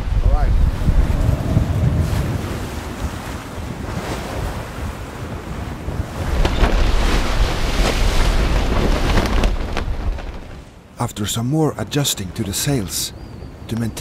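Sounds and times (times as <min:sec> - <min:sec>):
wind buffeting microphone: 0:00.0 - 0:10.9
wind rushing: 0:00.0 - 0:10.9
sea rushing past hull: 0:00.0 - 0:11.0.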